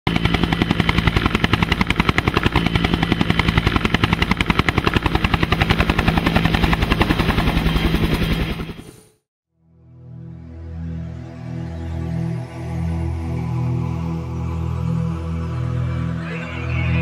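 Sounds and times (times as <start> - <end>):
helicopter rotor chopping: 0.1 - 9.2.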